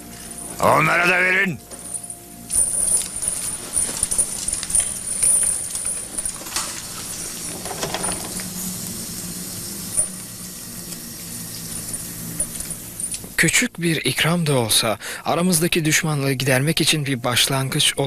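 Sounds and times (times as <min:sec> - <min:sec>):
low steady hum: 0:00.0 - 0:18.0
light metallic clinks and rattles: 0:01.6 - 0:08.9, 0:09.8 - 0:13.4.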